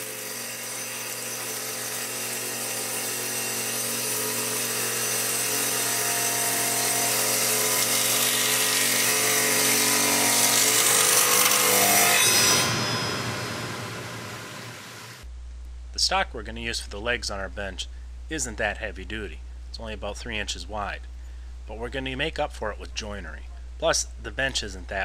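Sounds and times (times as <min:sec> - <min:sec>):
table saw cutting wood: 0:00.0 - 0:15.2.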